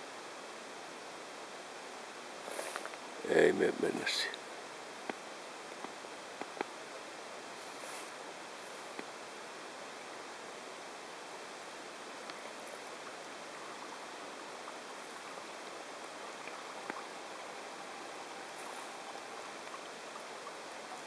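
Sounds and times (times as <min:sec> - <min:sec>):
river water rushing: 0:00.1 - 0:21.0
faint ticks: 0:02.5 - 0:03.1, 0:05.0 - 0:05.2, 0:05.8 - 0:06.8, 0:08.9 - 0:09.2, 0:12.2 - 0:13.9, 0:16.4 - 0:21.0.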